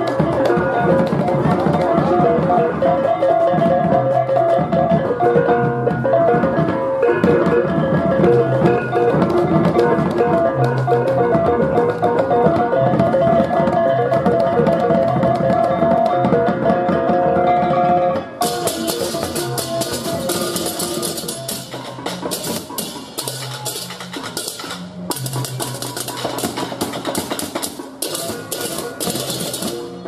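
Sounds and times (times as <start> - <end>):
drums beating: 0.0 - 30.0
hand cymbals clashing: 18.4 - 30.0.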